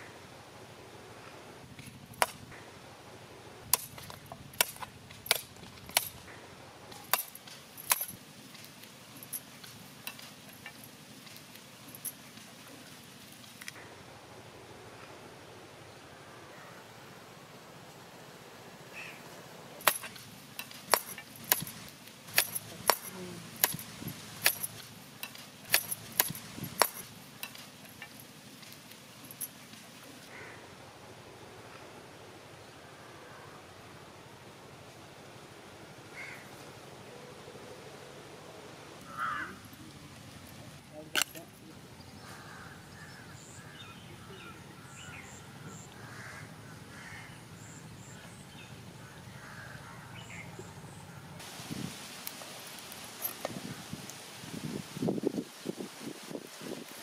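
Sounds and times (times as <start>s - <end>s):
sickle blade chopping stick: 6.9s - 8.2s, 19.8s - 28.2s.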